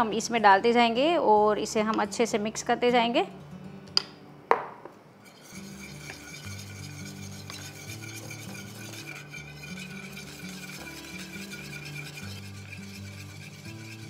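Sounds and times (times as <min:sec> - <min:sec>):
soft background music: 0:00.0 - 0:14.0
whisk scraping metal pan: 0:05.2 - 0:14.0.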